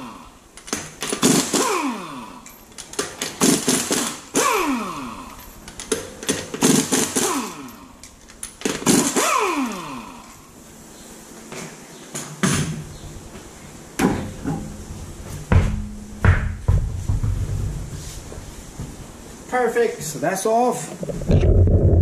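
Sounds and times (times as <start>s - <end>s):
pneumatic impact wrench hammering: 0.6s - 10.4s.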